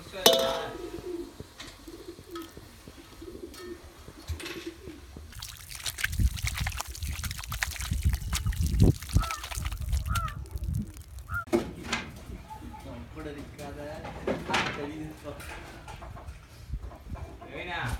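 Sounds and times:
dove cooing: 0.3 - 5.3
water splashing onto soil: 5.3 - 11.5.

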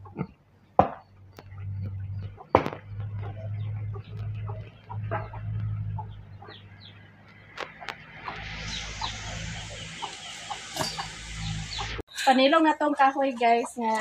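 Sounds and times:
low steady hum: 0.0 - 7.5
chickens clucking: 0.0 - 12.0, 12.8 - 14.0
sharp knocks: 0.8 - 1.1.

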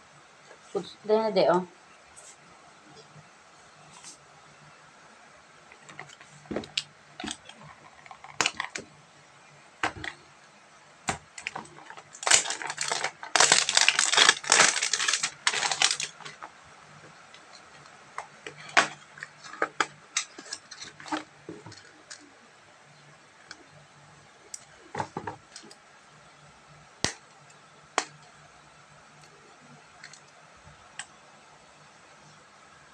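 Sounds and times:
wrapping rustling and tearing: 11.4 - 16.5.

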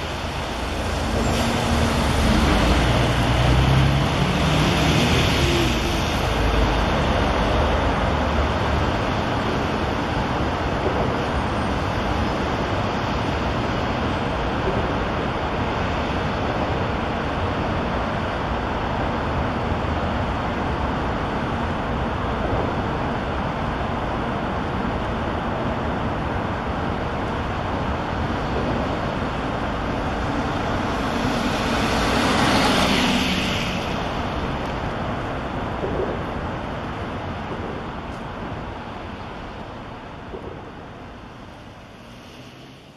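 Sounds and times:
vehicle passing: 0.0 - 7.7, 29.2 - 35.0
highway traffic: 0.0 - 42.9.

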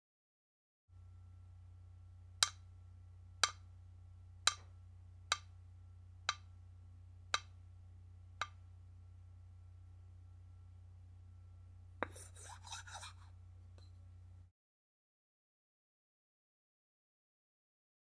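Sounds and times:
low steady hum: 0.9 - 14.5.

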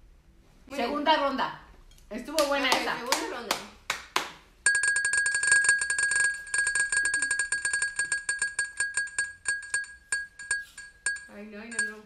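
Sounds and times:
spinning wheel ticking: 4.7 - 12.0.

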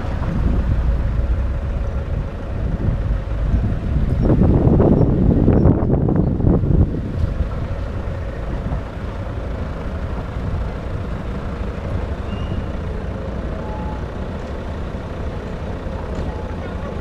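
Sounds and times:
car engine and tyres rumbling: 0.0 - 17.0.

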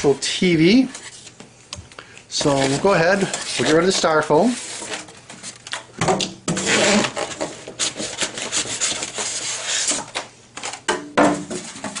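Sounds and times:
styrofoam scraping on cardboard: 2.4 - 5.6, 6.6 - 10.2.

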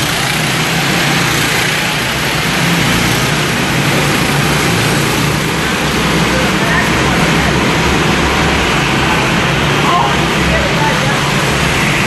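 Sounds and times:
racing kart engines: 0.0 - 12.0.

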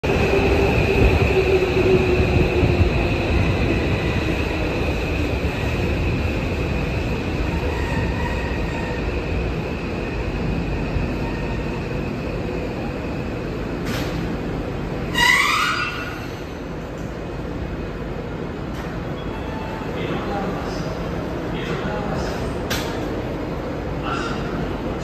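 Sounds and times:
subway train rumble: 0.0 - 25.0
high wheel squeal: 15.0 - 16.6.

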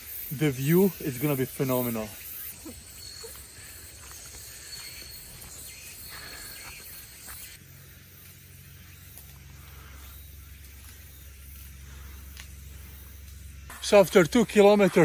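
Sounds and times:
soft footsteps on dirt: 2.7 - 7.6.

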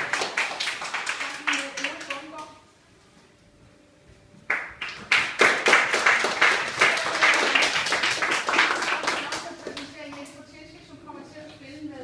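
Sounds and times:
audience applauding: 0.0 - 2.2, 4.5 - 9.9.

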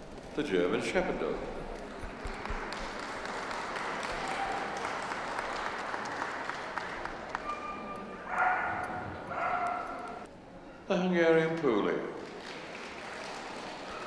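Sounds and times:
audience applauding: 2.1 - 8.0, 12.2 - 14.0.

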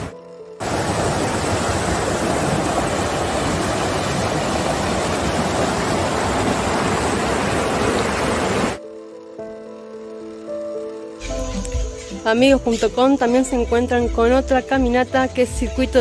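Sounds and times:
stream rushing over boulders: 0.0 - 8.8.

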